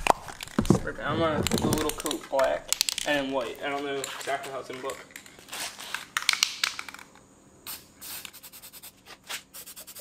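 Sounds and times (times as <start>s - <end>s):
spray can ball rattling: 0.0s - 0.8s, 1.4s - 10.0s
spray hiss: 7.6s - 10.0s.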